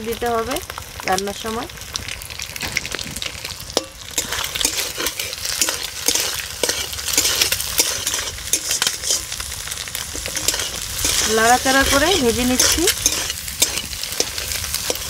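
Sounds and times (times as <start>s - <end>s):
eggs sizzling in hot oil: 0.0s - 15.0s
spatula scraping pan: 3.8s - 15.0s.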